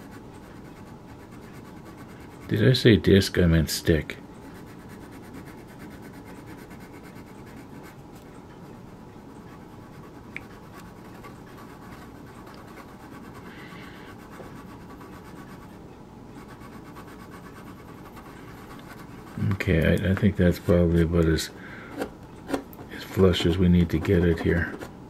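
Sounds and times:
sanding stick scratching plastic: 0:04.5 - 0:07.9, 0:14.1 - 0:15.7, 0:16.4 - 0:19.6, 0:23.1 - 0:24.9.

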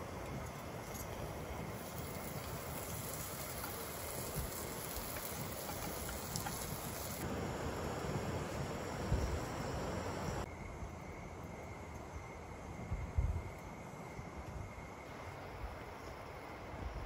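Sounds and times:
camp stove burner hissing: 0:00.0 - 0:17.0
sandwich frying in a pan: 0:01.7 - 0:09.1.

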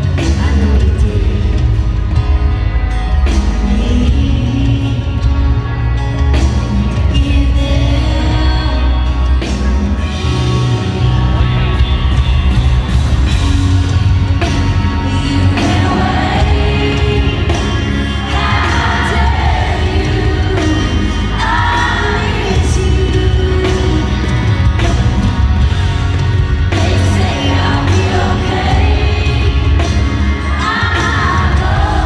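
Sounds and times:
woman singing lead vocal: 0:00.0 - 0:01.9, 0:03.4 - 0:05.8, 0:07.0 - 0:09.6, 0:15.0 - 0:25.1, 0:26.7 - 0:32.0
live country band with heavy bass: 0:00.0 - 0:32.0.

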